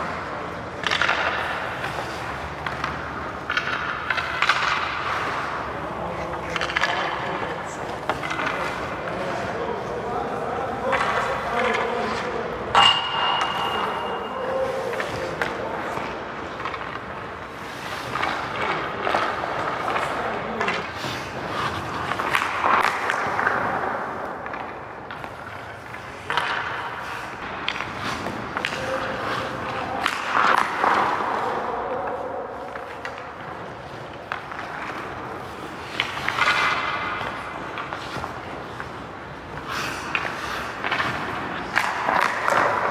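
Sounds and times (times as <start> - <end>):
skates scraping on ice: 0.0 - 42.9
stick and puck knocks: 0.7 - 5.5, 10.8 - 14.2, 40.0 - 42.9.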